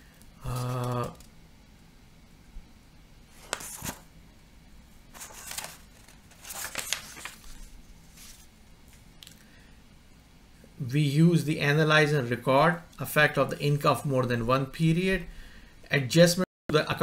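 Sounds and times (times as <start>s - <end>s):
paper pages rustling: 3.3s - 4.0s, 5.1s - 9.0s.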